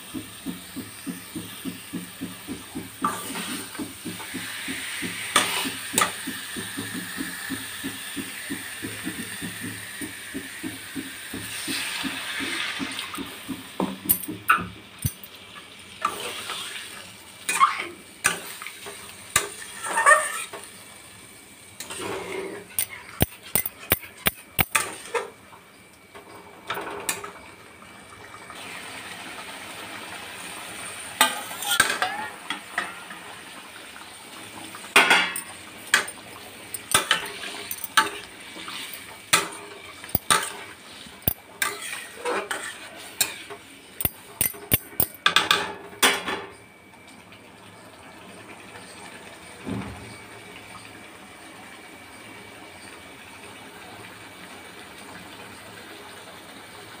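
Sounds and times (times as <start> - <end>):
metal spatula scraping a pot: 41.3 - 43.5.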